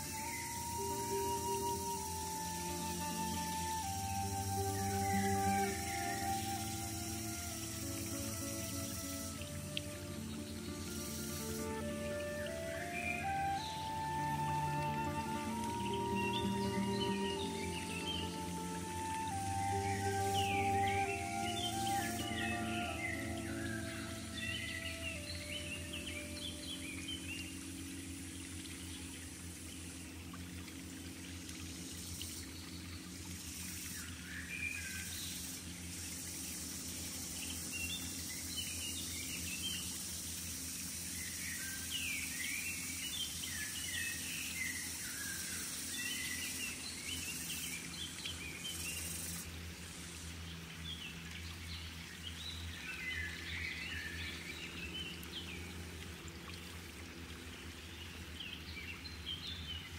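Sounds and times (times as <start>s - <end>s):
birds chirping: 0.0s - 30.3s
low steady rumble: 0.0s - 59.9s
steady high hiss: 0.0s - 59.9s.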